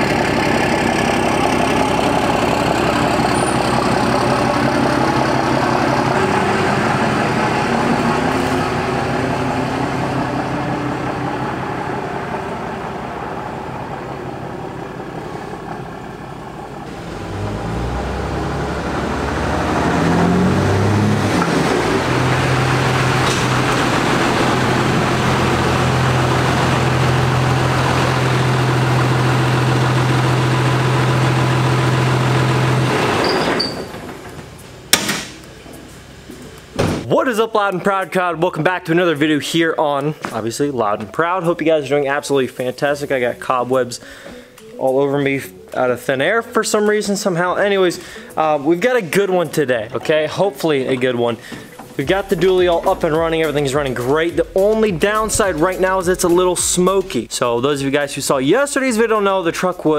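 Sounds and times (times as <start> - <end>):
engine revving: 0.0 - 33.6
diesel truck engine idling: 0.0 - 36.8, 51.4 - 57.7
truck driving away: 0.0 - 37.1, 50.9 - 59.9.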